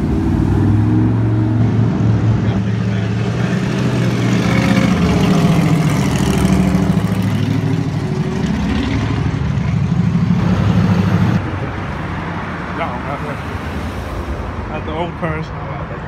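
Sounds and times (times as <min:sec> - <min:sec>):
drag car engine driving by: 0:00.0 - 0:11.4.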